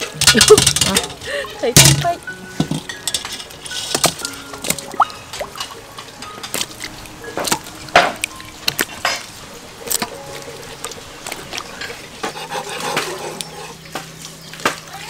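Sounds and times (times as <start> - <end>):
fish knocking in metal colander: 0.0 - 5.7
water splashing and dripping: 0.0 - 15.0.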